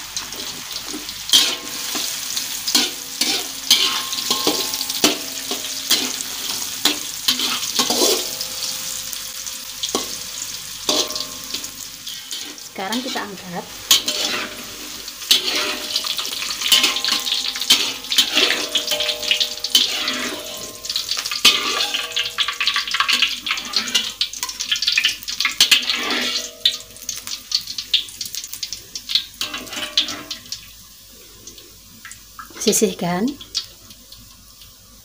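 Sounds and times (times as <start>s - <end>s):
oil sizzling in a wok: 0.0s - 35.0s
metal utensils scraping a wok: 0.2s - 9.2s, 9.8s - 27.4s, 29.4s - 30.5s.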